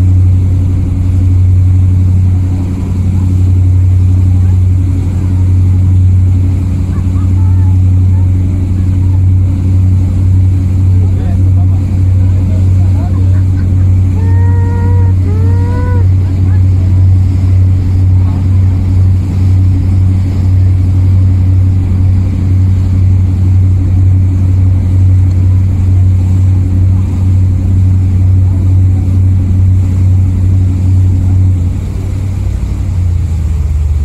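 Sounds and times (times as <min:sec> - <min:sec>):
motorboat engine drone: 0:00.0 - 0:34.0.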